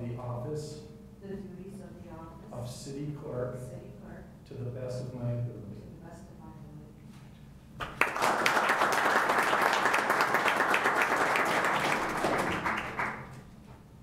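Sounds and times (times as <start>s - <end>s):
audience applauding: 7.8s - 13.4s.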